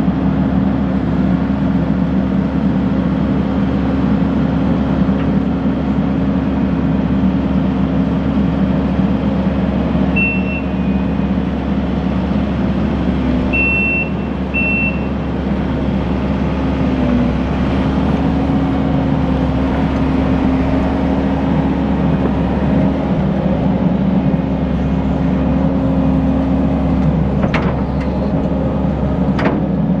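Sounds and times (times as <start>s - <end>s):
track loader diesel engine: 0.0s - 30.0s
short high beeps: 10.2s - 10.8s, 13.6s - 15.1s.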